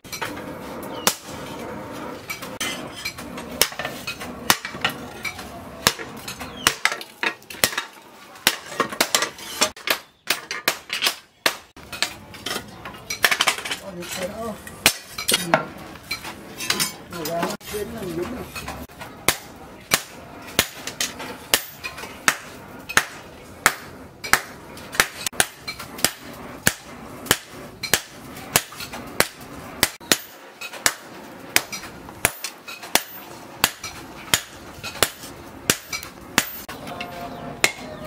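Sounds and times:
hammer striking metal on anvil: 0:03.6 - 0:05.0, 0:19.3 - 0:38.0.

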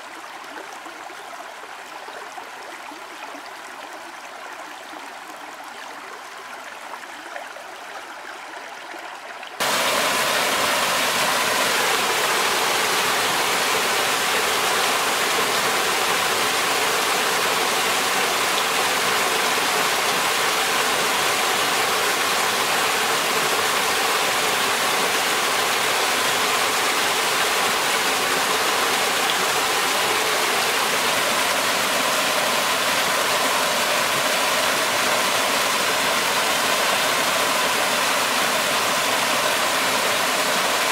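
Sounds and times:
steady hush: 0:09.6 - 0:40.9
waterfall splashing into pool: 0:09.6 - 0:40.9.

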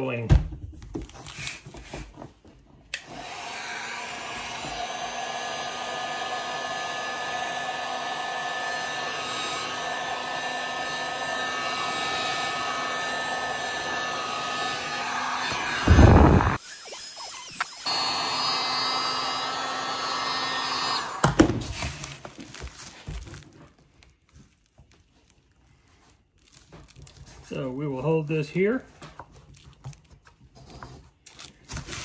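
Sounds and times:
heat gun blowing with fan whine: 0:02.9 - 0:22.2.

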